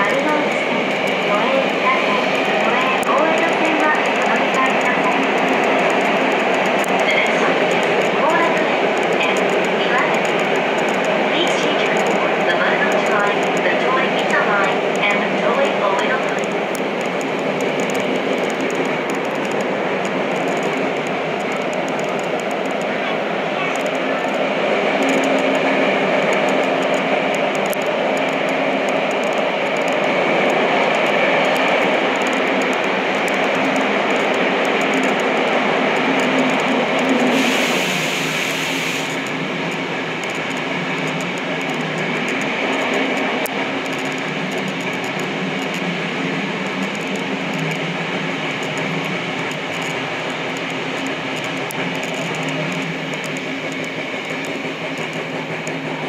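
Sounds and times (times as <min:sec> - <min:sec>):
subway train rumbling in tunnel: 0:00.0 - 0:56.0.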